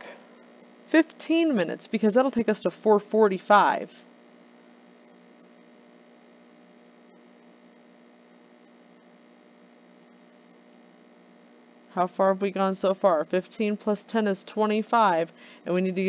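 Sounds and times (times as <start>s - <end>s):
electrical mains hum: 0.0s - 16.0s.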